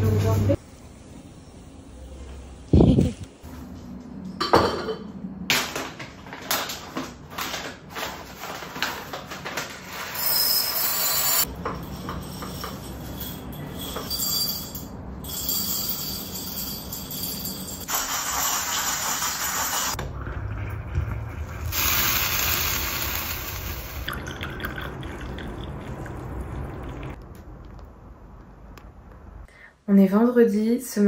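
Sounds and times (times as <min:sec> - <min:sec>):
dishes and utensils clattering: 0:04.4 - 0:06.6, 0:11.4 - 0:15.0.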